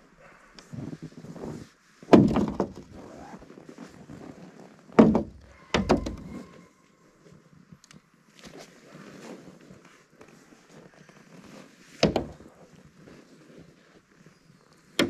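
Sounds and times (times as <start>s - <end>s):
heavy thunks of frozen objects: 2.0s - 3.2s.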